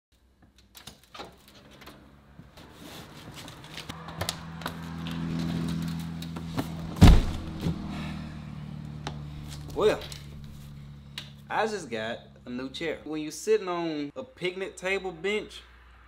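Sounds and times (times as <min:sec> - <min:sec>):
heavy box thumping on floor: 0:07.0 - 0:07.8.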